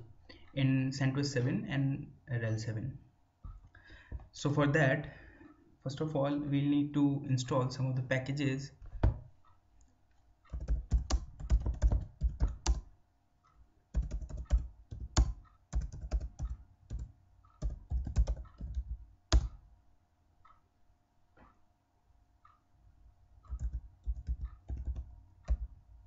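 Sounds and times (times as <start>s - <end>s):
computer keyboard typing: 10.4s - 12.9s, 13.9s - 19.6s, 23.5s - 25.7s.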